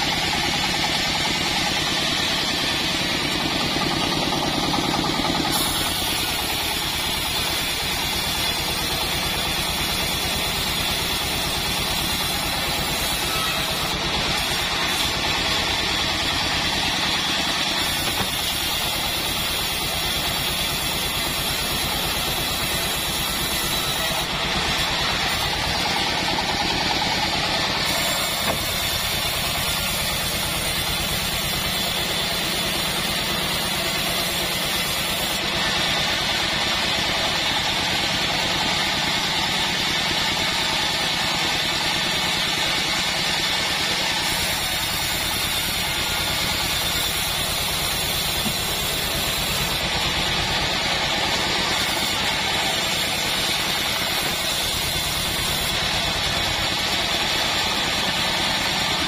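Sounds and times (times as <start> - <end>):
band saw blade turning: 0.0 - 15.3, 17.2 - 35.5, 44.2 - 50.4
engine idling: 0.0 - 59.0.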